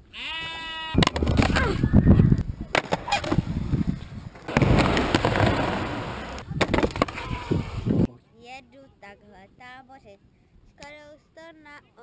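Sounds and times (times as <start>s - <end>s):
skateboard wheels rolling: 1.0s - 8.1s
skateboard clattering on ground: 2.7s - 3.5s, 4.4s - 7.3s.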